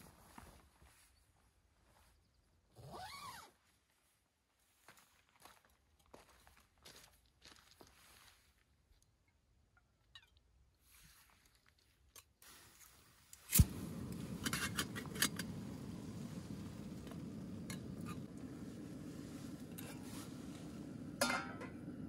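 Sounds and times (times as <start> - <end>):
gas stove burning: 13.4 - 22.0
metal pot and lid clinking: 21.2 - 21.8.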